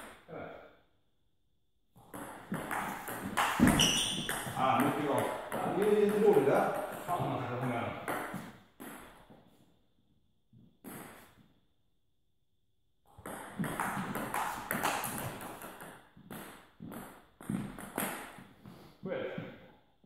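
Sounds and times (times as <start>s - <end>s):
table tennis ball knocking: 2.0s - 9.0s, 13.1s - 18.3s.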